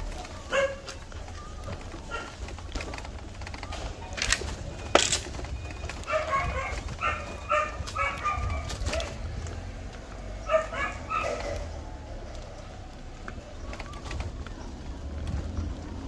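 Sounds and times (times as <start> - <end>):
dog barking: 0.4 - 1.0, 2.0 - 2.4, 6.0 - 9.2, 10.4 - 11.6.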